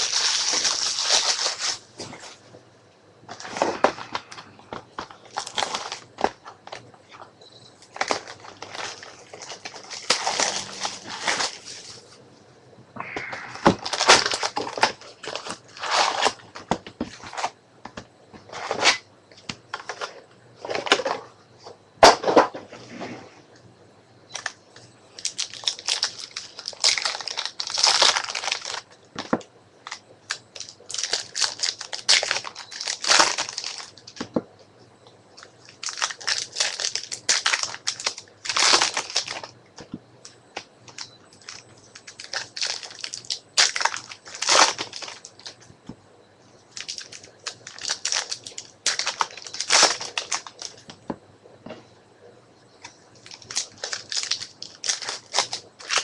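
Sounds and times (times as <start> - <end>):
wrappers crinkling and tearing: 0.0 - 2.4, 3.3 - 6.9, 7.8 - 12.2, 13.6 - 17.5, 25.2 - 34.2, 35.4 - 39.5, 40.9 - 45.6, 46.7 - 50.9, 53.2 - 56.0.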